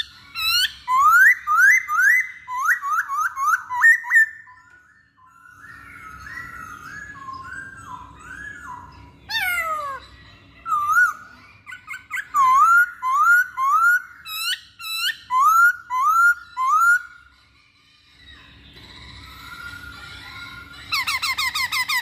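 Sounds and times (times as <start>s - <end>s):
bird singing whistled notes: 0.0s - 17.2s.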